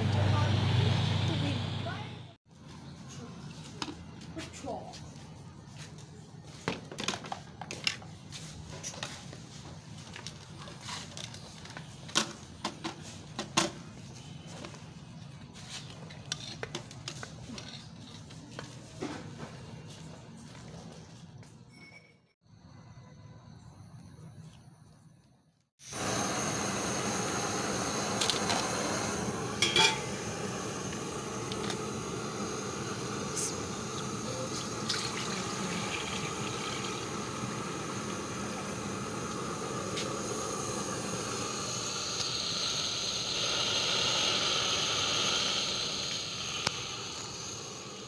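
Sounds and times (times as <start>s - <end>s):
water pouring into metal pot: 33.0s - 39.3s.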